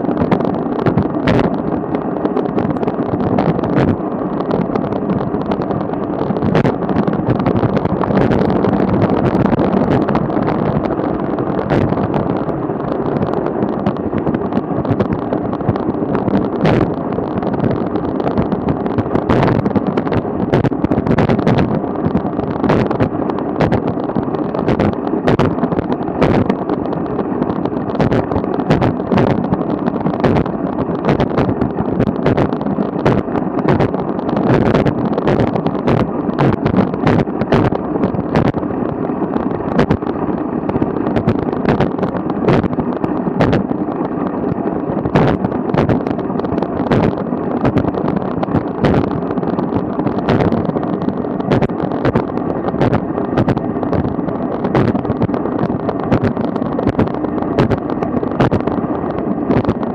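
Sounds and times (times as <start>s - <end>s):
bike tyres rumbling on asphalt: 0.0s - 59.9s
wind on microphone: 0.0s - 59.9s.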